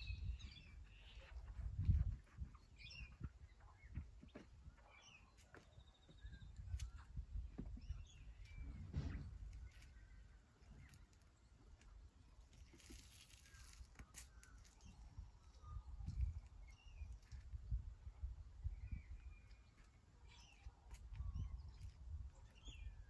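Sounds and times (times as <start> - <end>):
small birds chirping: 0.0 - 23.0
low uneven rumble: 7.2 - 12.0.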